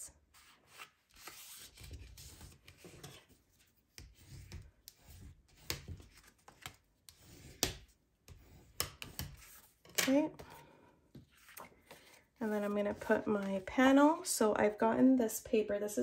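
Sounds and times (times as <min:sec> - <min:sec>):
bone folder scraping card: 0:00.4 - 0:09.9.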